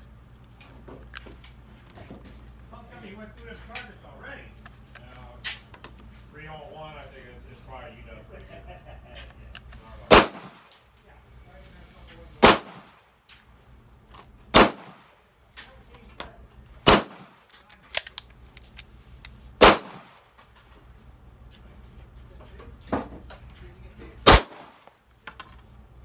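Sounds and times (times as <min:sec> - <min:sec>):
pistol shots: 0:10.1 - 0:10.8, 0:12.4 - 0:13.0, 0:14.5 - 0:15.1, 0:16.8 - 0:18.1, 0:19.6 - 0:20.3, 0:24.2 - 0:24.9.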